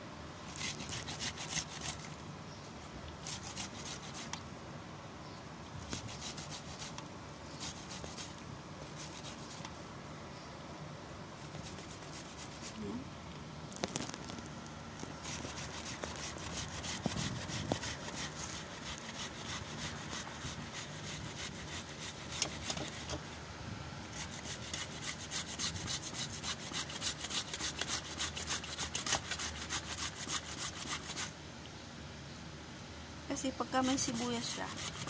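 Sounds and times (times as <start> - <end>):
onion grating rasps: 0.4 - 2.2, 15.0 - 23.1, 33.8 - 35.0.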